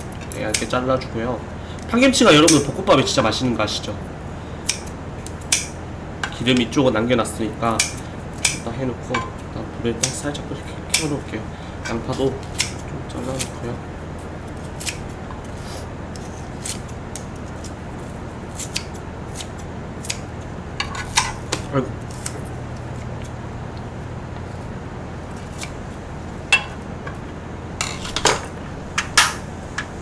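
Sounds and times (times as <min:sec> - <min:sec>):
steady low hum: 0:00.0 - 0:30.0
scissors snipping onion: 0:00.2 - 0:00.8, 0:02.4 - 0:02.7, 0:04.6 - 0:05.8, 0:07.7 - 0:08.7, 0:10.0 - 0:10.3, 0:10.9 - 0:11.2, 0:11.9 - 0:13.6, 0:14.4 - 0:23.4, 0:25.3 - 0:25.8.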